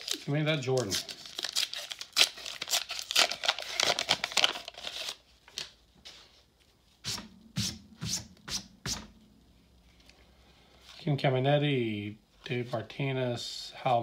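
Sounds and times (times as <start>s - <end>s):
foil wrapper crinkling and tearing: 0.0s - 5.8s.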